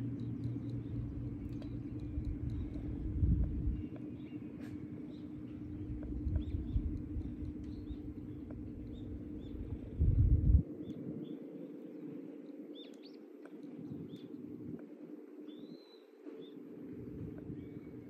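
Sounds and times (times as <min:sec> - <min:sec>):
faint bird chirps: 0:00.1 - 0:10.2, 0:15.4 - 0:16.8.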